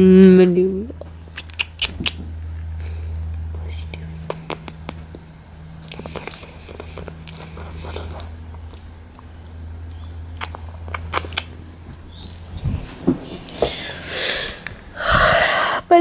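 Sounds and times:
low hum: 0.0s - 16.0s
kissing and lip-smacking: 1.0s - 2.5s, 3.3s - 11.6s.

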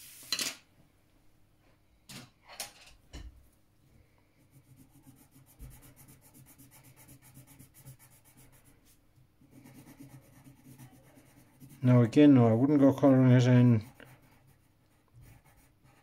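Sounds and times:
pencil shading on paper: 4.4s - 16.0s.

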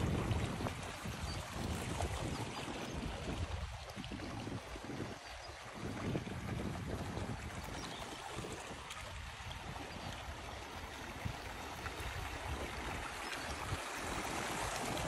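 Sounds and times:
stream gurgling over stones: 0.0s - 15.0s
wind gusting on microphone: 0.0s - 15.0s.

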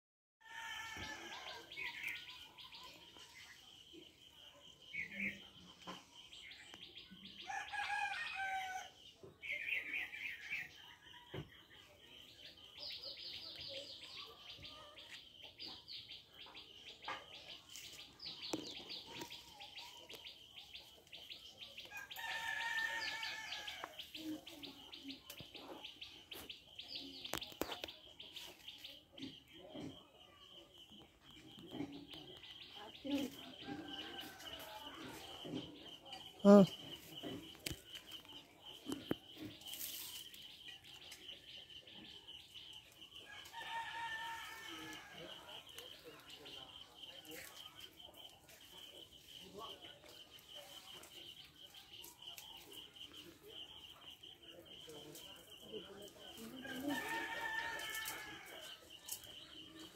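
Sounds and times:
small birds chirping: 0.5s - 59.9s
rooster crowing: 7.4s - 8.9s, 56.7s - 58.5s.

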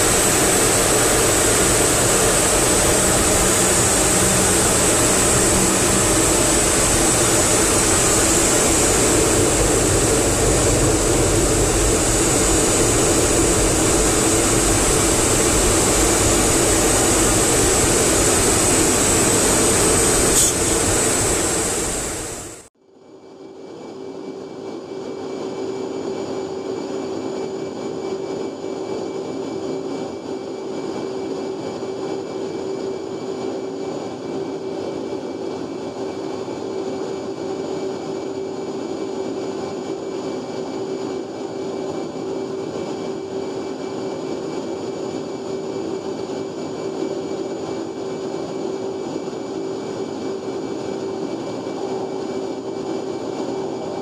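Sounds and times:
high whines: 0.0s - 22.7s
jet engine and airflow roar: 0.0s - 54.0s.

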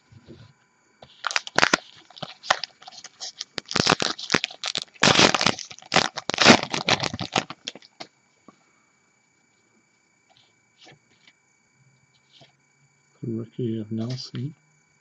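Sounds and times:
card pack wrapper crinkling: 1.0s - 8.1s.

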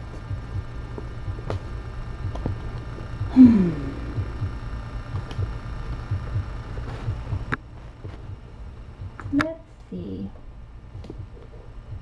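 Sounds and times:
low pulsing hum: 0.0s - 12.0s
woman's low vocal sound: 3.2s - 4.5s.

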